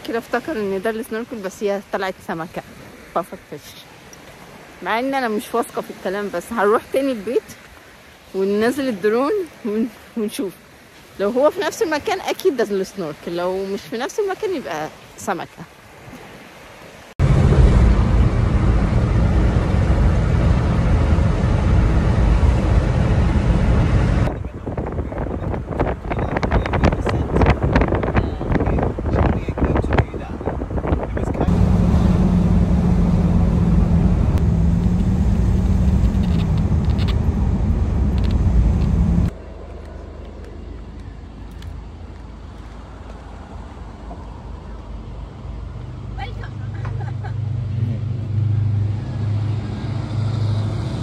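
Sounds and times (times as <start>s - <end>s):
car road and engine rumble: 17.2s - 51.0s
quiet outdoor background: 31.4s - 51.0s.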